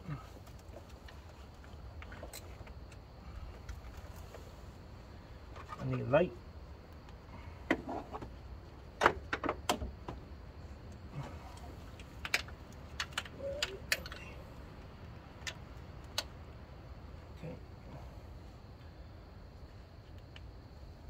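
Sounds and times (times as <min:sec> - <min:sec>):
hand tools clinking and knocking: 0:11.2 - 0:14.4.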